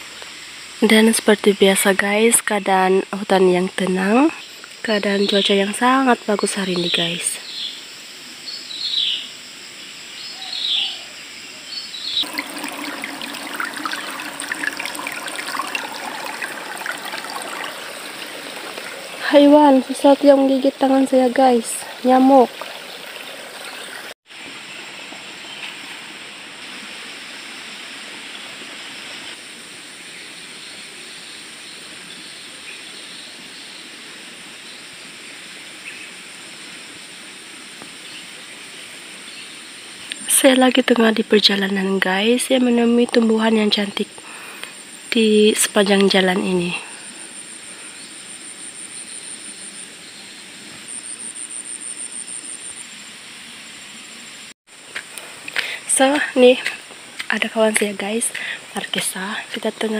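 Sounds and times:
pulsing insect trill: 0.3s - 22.5s, 39.3s - 54.9s
water flowing in stream: 12.2s - 30.0s.

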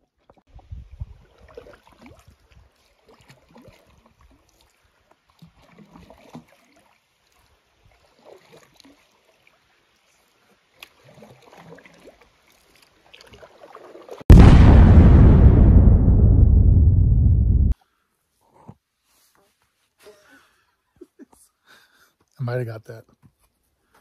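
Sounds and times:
canoe paddles dipping in water: 0.2s - 14.2s.

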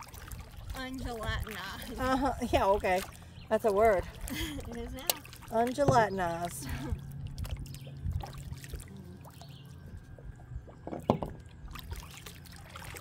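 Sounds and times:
low steady hum: 0.0s - 13.0s
water trickling off paddle: 0.0s - 13.0s
paddle knocking against kayak: 5.1s - 6.2s, 10.8s - 11.4s.

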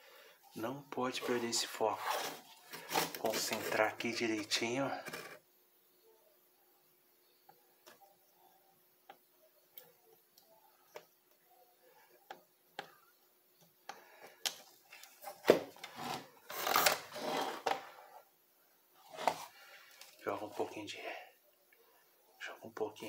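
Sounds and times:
board scraping and rattling: 15.8s - 17.9s.

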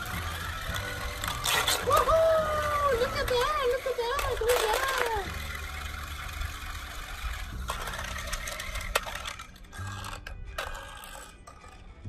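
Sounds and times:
electric toy motors humming: 0.0s - 12.0s
wheels clattering on concrete: 0.0s - 12.0s.

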